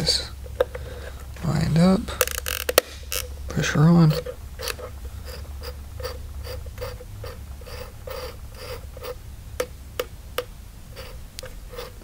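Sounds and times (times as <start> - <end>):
plastic pivot clicking and scraping: 2.2 - 3.3.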